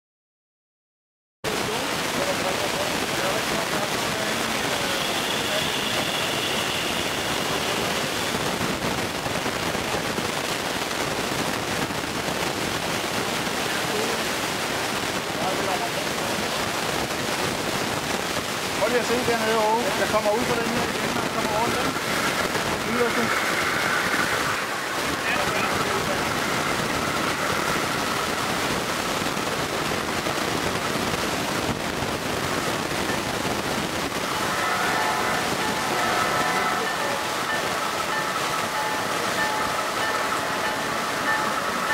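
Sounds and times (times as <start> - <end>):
model train wheels on rails: 18.8 - 33.5, 34.2 - 41.9.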